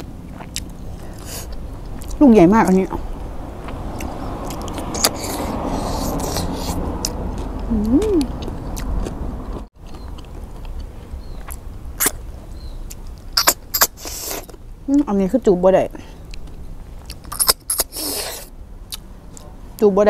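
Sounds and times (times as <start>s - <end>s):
steady rumbling noise: 0.0s - 17.9s
sucking: 0.4s - 1.7s, 2.9s - 8.4s, 13.4s - 14.6s, 17.3s - 18.6s.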